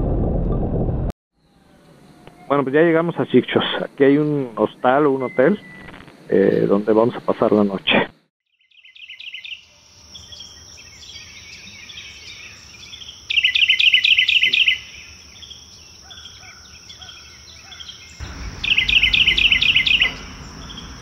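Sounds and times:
low rumble: 0.0s - 1.1s, 18.2s - 21.0s
soft bird chirps: 8.6s - 21.0s
songbird trilling: 8.6s - 21.0s
high-pitched whine: 18.2s - 21.0s.

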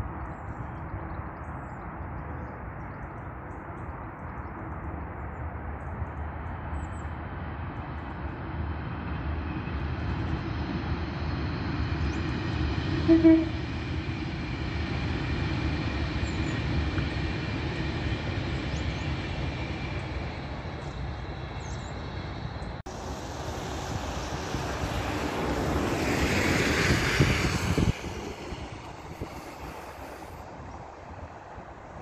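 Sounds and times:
train rumbling along tracks: 0.0s - 32.0s
rush of noise: 13.6s - 32.0s.

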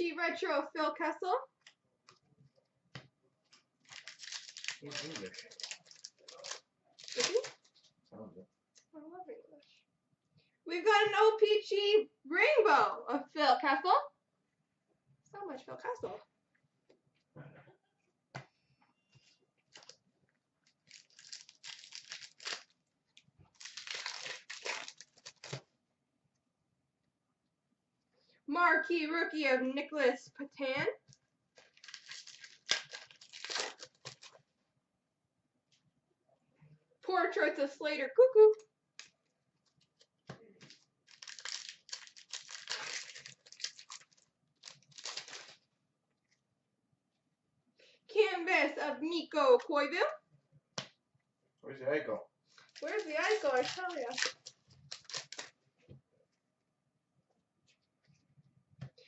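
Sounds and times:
foil wrapper crinkling and tearing: 3.8s - 7.8s, 20.6s - 22.8s, 23.5s - 25.6s, 31.6s - 34.4s, 39.9s - 45.7s, 52.6s - 55.6s.

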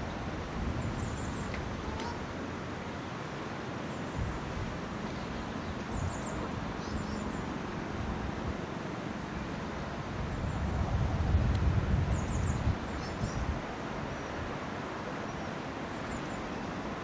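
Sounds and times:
wind buffeting microphone: 0.0s - 2.4s, 4.1s - 8.7s, 9.9s - 14.8s.

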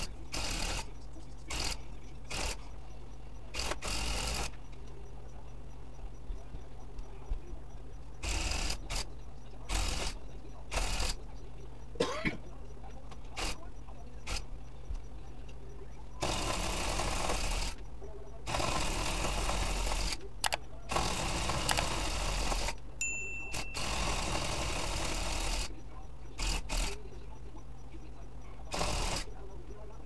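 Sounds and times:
electric tufting gun punching yarn: 3.6s - 4.5s, 8.2s - 9.0s, 16.2s - 17.8s, 18.5s - 20.2s, 20.9s - 22.8s, 23.5s - 25.7s, 28.7s - 29.3s.

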